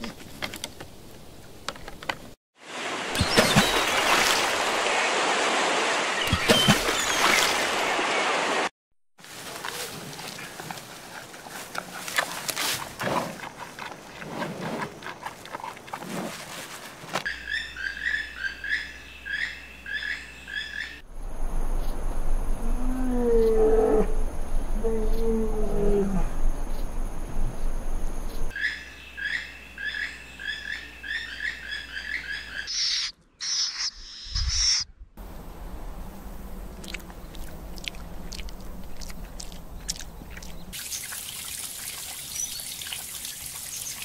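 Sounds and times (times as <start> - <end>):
water splashing: 2.6 - 8.7, 36.7 - 44.0
panda crunching bamboo: 9.4 - 17.2
bird chirping: 28.2 - 34.9.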